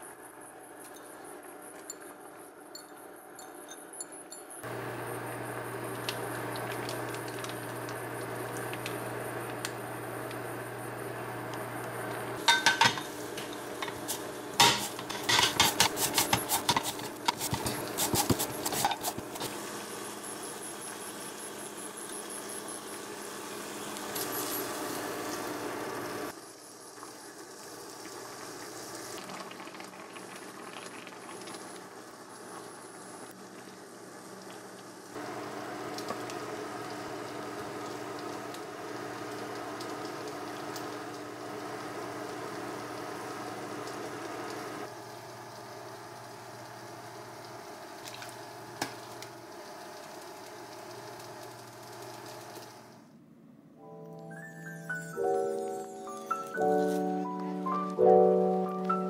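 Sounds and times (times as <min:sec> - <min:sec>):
pot and utensil noise: 0:12.4 - 0:19.5
wooden spoon stirring pot: 0:12.5 - 0:19.6.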